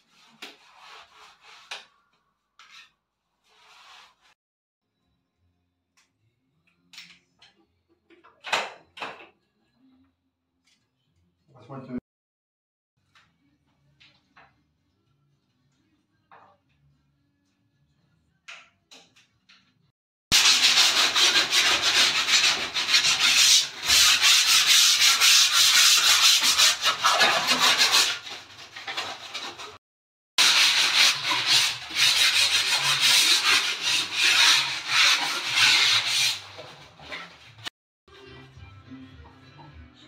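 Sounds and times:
sanding block scraping wall: 0.0 - 1.9, 3.4 - 4.4, 20.3 - 29.8, 30.4 - 37.7.

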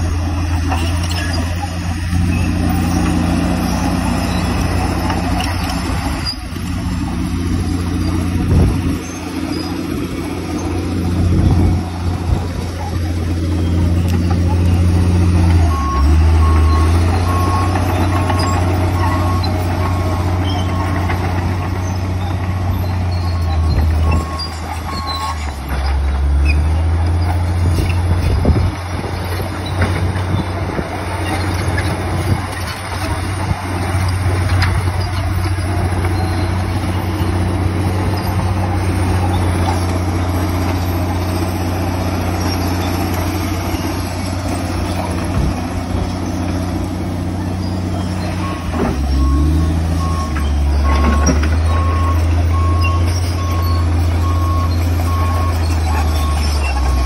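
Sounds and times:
bulldozer diesel engine under load: 0.0 - 57.0
reversing alarm beeping: 13.5 - 21.3, 22.2 - 25.6, 47.7 - 57.0.

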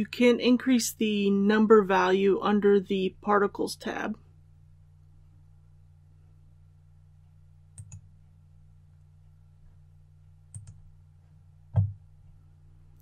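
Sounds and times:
low steady hum: 0.0 - 13.0
computer mouse clicks: 7.8 - 8.1, 10.5 - 10.9.

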